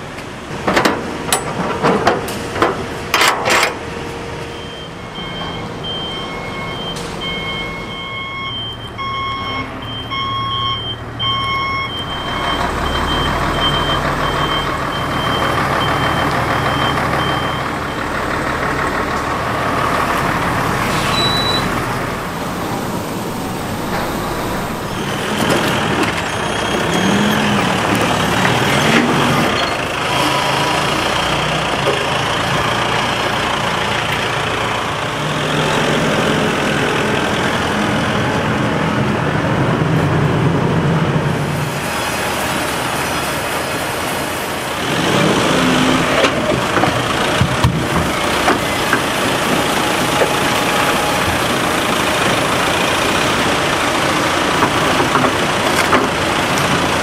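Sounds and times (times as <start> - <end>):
truck engine running: 0.0 - 57.0
truck back-up alarm beeping: 3.7 - 33.8, 47.1 - 53.8.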